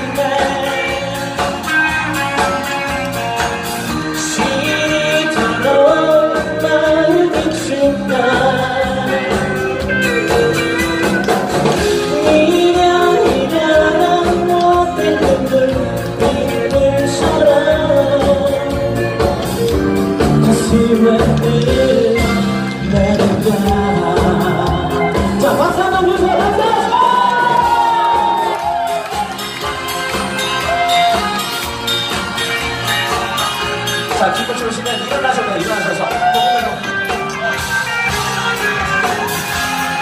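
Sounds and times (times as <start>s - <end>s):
man singing a ballad: 0.0s - 1.7s, 4.0s - 10.0s, 11.9s - 27.6s
electric bass: 0.0s - 35.3s.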